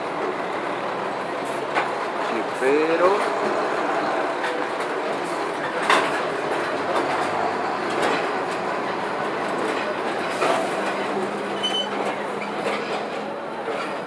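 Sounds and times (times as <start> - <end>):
truck tyre and road noise: 0.0 - 14.0
trailer knocks and rattles: 4.4 - 14.0.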